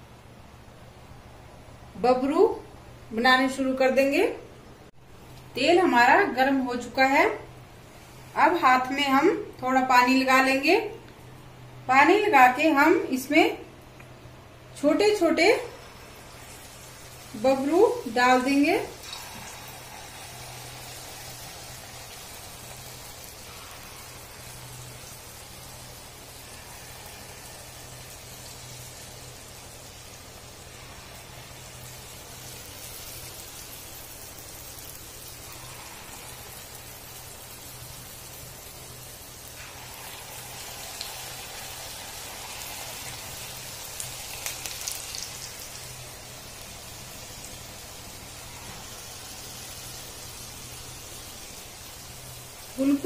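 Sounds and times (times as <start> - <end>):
dumplings sizzling in hot oil: 4.8 - 53.0
oil crackling: 15.8 - 52.1.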